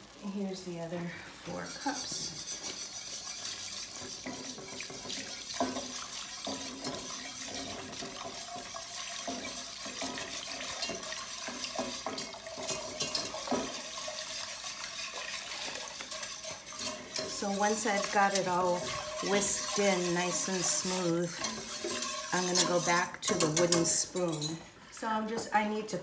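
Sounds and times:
milk pouring into a pot: 0:01.3 - 0:22.9
wire whisk scraping a pot: 0:01.5 - 0:24.6.

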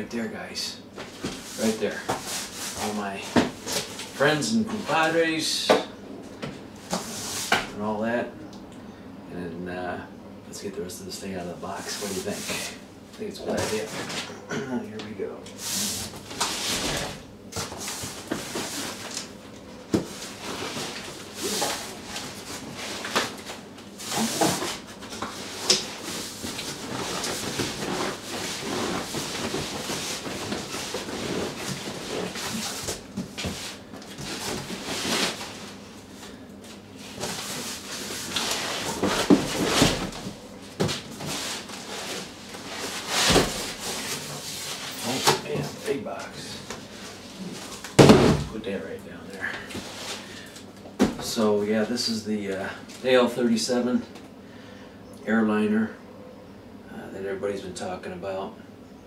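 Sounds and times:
cardboard boxes scraping: 0:24.0 - 0:35.8, 0:37.0 - 0:45.8.

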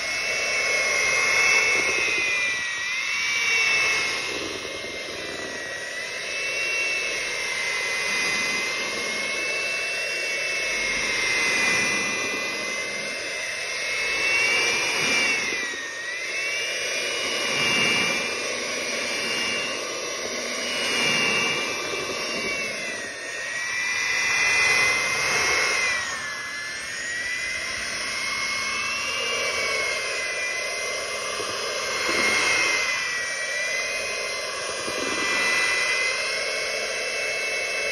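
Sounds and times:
electric hand mixer whirring: 0:00.0 - 0:37.9.

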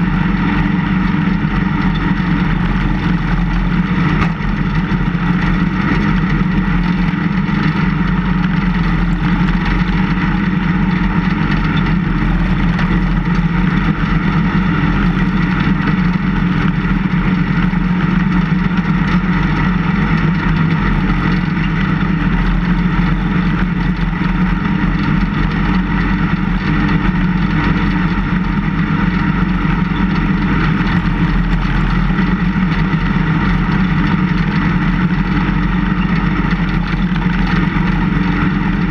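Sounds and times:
snowplow engine running: 0:00.0 - 0:38.9.

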